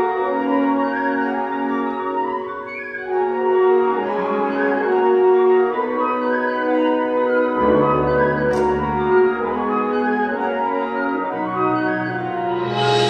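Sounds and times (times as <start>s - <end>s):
wind band playing chords: 3.4s - 13.0s.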